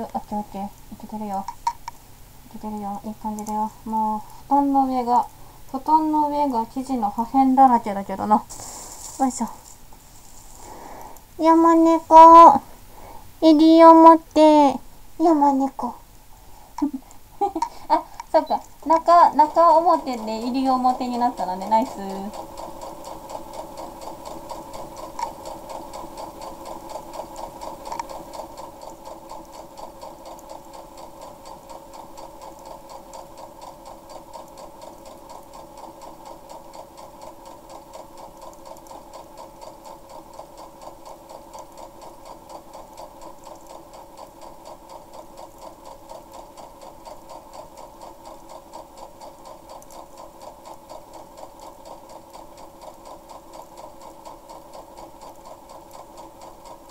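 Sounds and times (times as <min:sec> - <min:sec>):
sewing machine stitching: 0:17.5 - 0:56.9.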